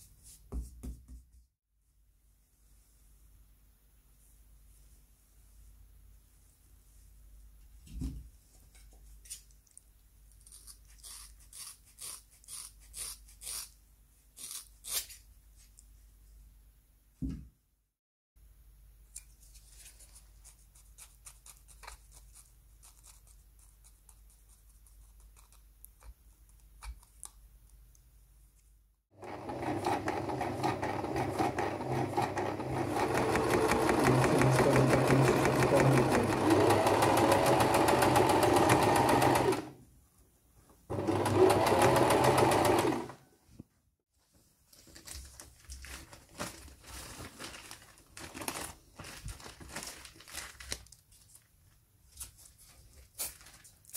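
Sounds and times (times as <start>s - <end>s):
sewing machine stitching leather: 29.2s - 39.8s, 40.9s - 43.2s.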